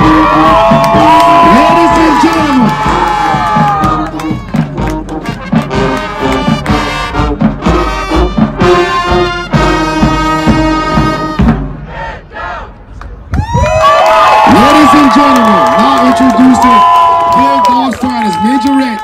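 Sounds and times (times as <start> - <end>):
marching band playing: 0.0 - 12.9.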